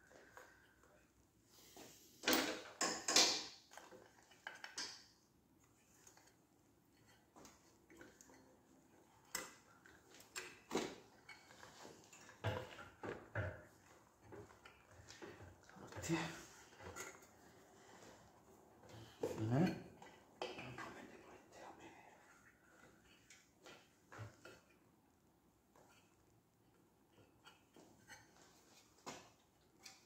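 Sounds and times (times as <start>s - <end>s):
clicks and scrapes of parts handled: 2.2s - 6.4s.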